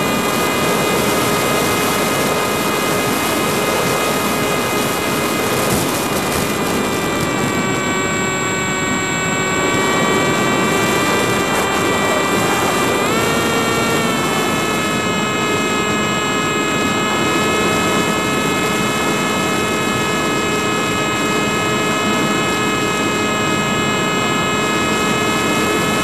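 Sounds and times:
drone motors whining: 0.0s - 18.4s
wind noise on microphone: 0.0s - 26.0s.

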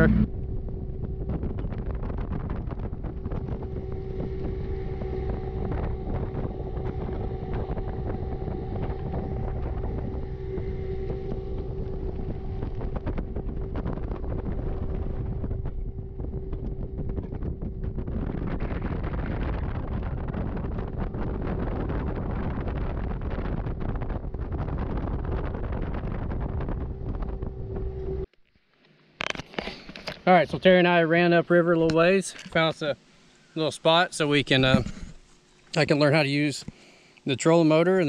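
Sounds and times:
wind buffeting microphone: 0.0s - 28.3s
outboard engine drone: 0.0s - 28.4s, 29.2s - 38.0s.

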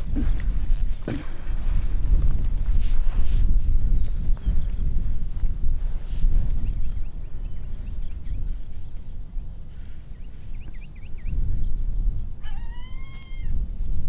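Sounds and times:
low rumble on microphone: 0.0s - 14.0s
dog whining or howling: 12.4s - 13.6s.

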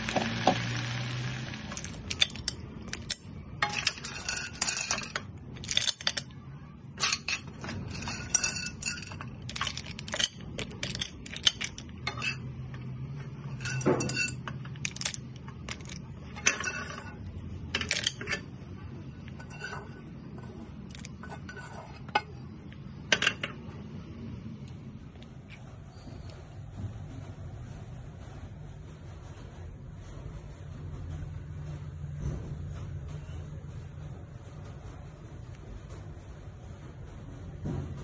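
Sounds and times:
shells and dishware clinking: 2.1s - 6.4s, 7.0s - 18.5s.

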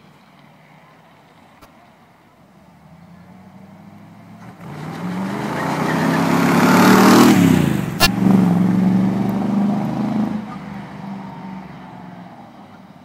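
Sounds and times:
car engine passing by: 2.7s - 13.0s.

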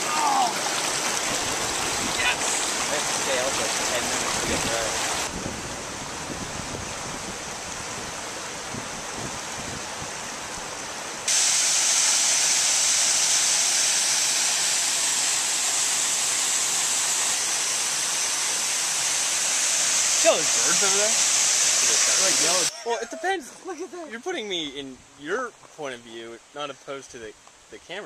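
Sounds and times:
river rapids rushing: 0.0s - 5.4s, 10.5s - 24.3s
waterfall rushing: 0.0s - 24.9s.

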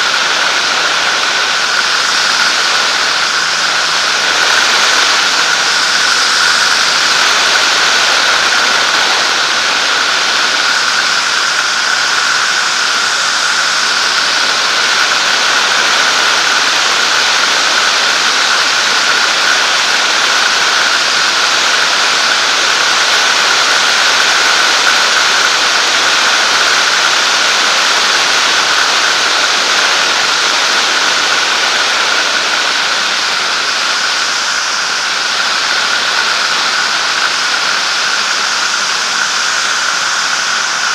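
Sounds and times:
heavy wind rush: 0.0s - 20.3s
high-pitched whine: 0.0s - 40.9s
light aircraft engine and propeller: 0.0s - 40.9s.

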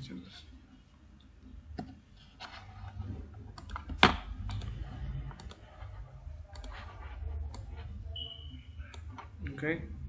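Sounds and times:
mouse and keyboard clicks: 3.5s - 5.8s.

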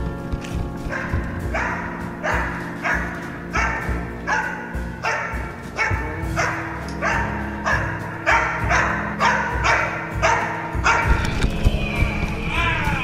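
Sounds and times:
background music: 0.0s - 13.0s
dog barking: 0.9s - 11.2s.

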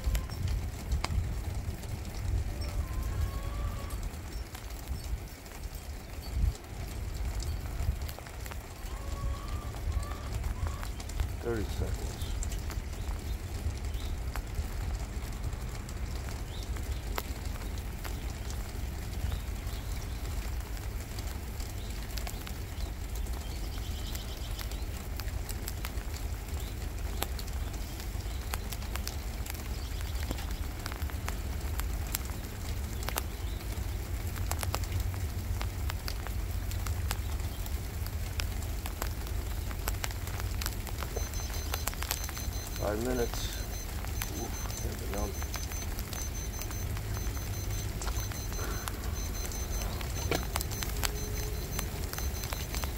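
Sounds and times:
rain pattering: 0.0s - 52.9s
wind buffeting microphone: 0.2s - 3.3s.

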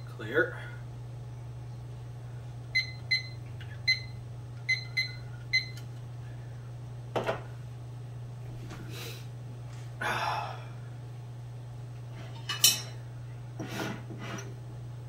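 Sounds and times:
kitchen timer beeping: 2.7s - 5.8s.

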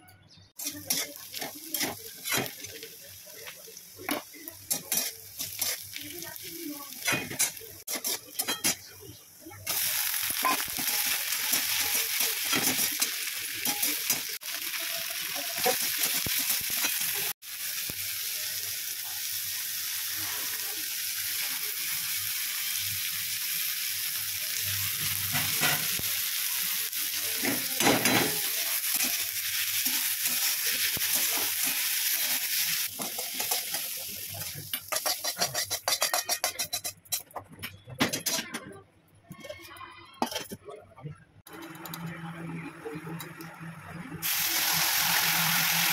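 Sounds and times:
food sizzling in oil: 0.5s - 37.0s, 41.5s - 45.9s
steel spatula scraping a pan: 0.6s - 2.8s, 7.0s - 8.9s, 27.4s - 37.5s.

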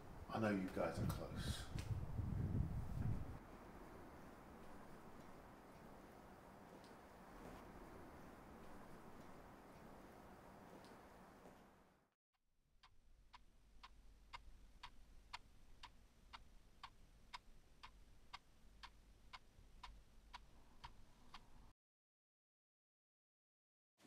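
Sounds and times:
faint clock ticking: 4.0s - 11.1s, 12.8s - 21.7s.

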